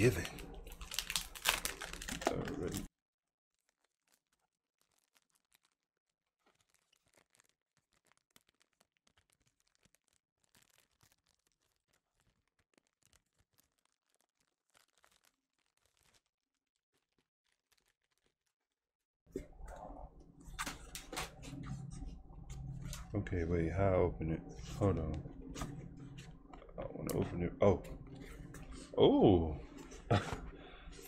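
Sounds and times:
plastic wrap crinkling and tearing: 0:00.0 - 0:02.9, 0:03.5 - 0:18.8.

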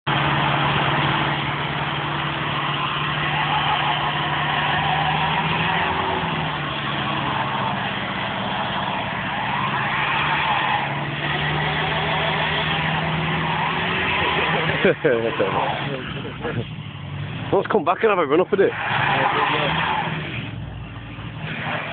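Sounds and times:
diesel engine labouring: 0:00.0 - 0:21.9
wheels spinning on snow: 0:00.1 - 0:16.6.

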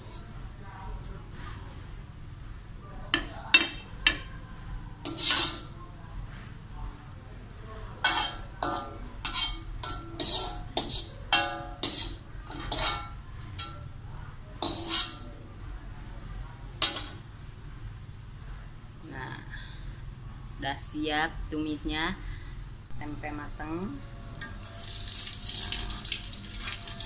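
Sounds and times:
metal spatula clinking on wok: 0:08.0 - 0:13.8.

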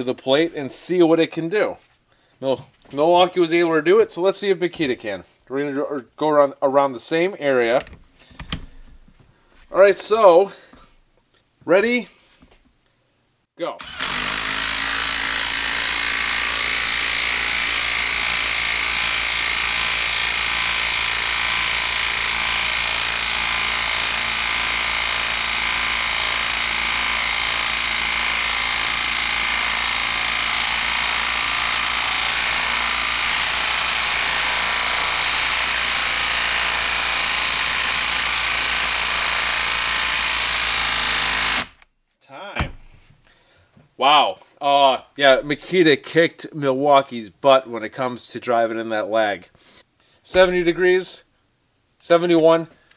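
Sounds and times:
impact driver hammering screw: 0:13.8 - 0:41.9.

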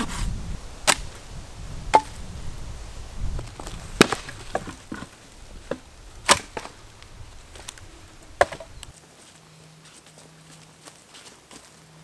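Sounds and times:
blade chopping into log: 0:00.8 - 0:01.1, 0:01.9 - 0:02.2, 0:03.6 - 0:05.1, 0:05.7 - 0:06.8, 0:08.3 - 0:08.8.

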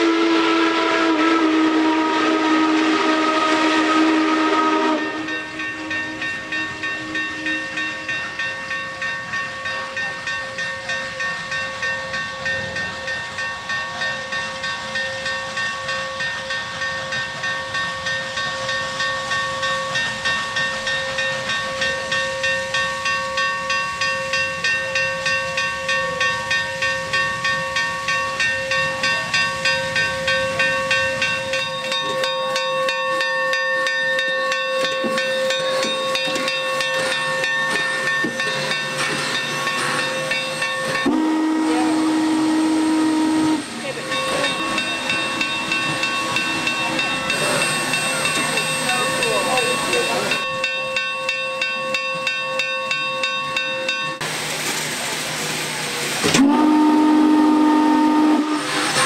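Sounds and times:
steam whistle blasts: 0:00.0 - 0:08.4, 0:11.7 - 0:50.7, 0:56.2 - 0:59.0
rush of steam: 0:00.0 - 0:59.0
steam hissing: 0:00.0 - 0:59.0.

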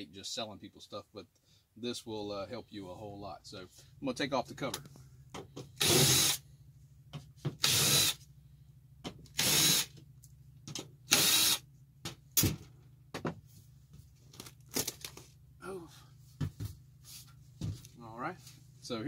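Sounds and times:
cordless drill driving screws: 0:05.8 - 0:06.4, 0:07.6 - 0:08.2, 0:09.3 - 0:09.9, 0:11.1 - 0:11.6.

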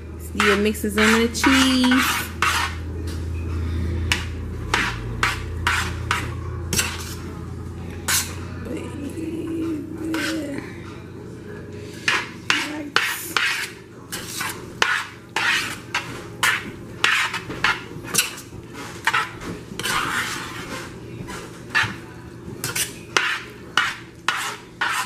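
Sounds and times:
utensil scraping a steel pan: 0:00.2 - 0:02.9, 0:03.6 - 0:07.4, 0:08.0 - 0:08.4, 0:09.7 - 0:10.6, 0:12.0 - 0:22.0, 0:22.6 - 0:25.0.

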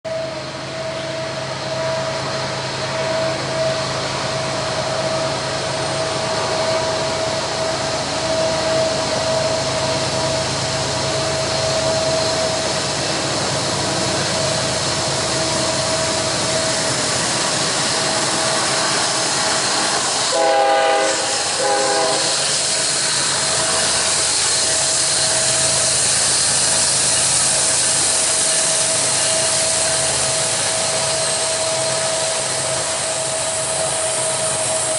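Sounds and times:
diesel locomotive engine drone: 0:00.0 - 0:34.9
train wheel and rail noise: 0:00.0 - 0:34.9
locomotive horn blasts: 0:20.3 - 0:22.4.

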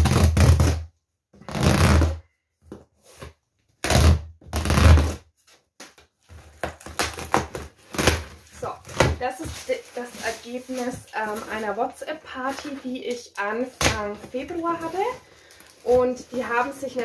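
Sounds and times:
packing tape ripping off cardboard: 0:00.0 - 0:02.2, 0:03.1 - 0:11.4
tape and cardboard crinkling: 0:00.0 - 0:17.0.

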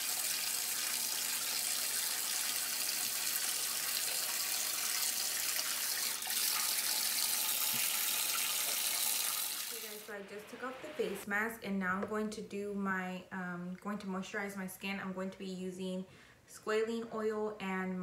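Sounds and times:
faucet water running into bathtub: 0:00.0 - 0:10.1.

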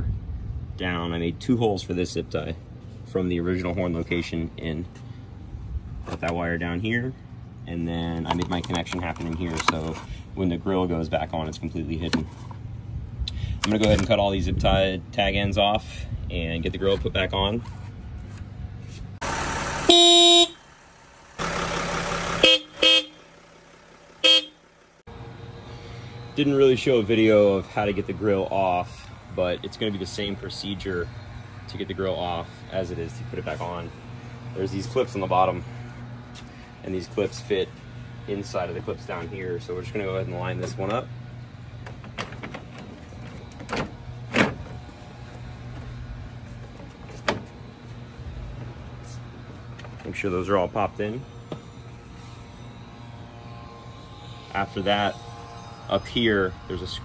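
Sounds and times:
vehicle horn blasts: 0:19.8 - 0:20.7, 0:22.4 - 0:23.4, 0:24.2 - 0:24.7
steady low hum: 0:24.4 - 0:57.0.

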